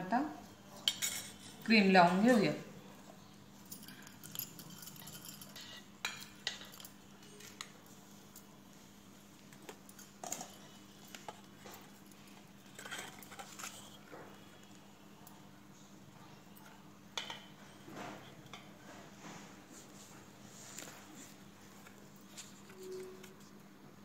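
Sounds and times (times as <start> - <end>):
spatula clinking on bowl and plate: 3.8 - 7.7.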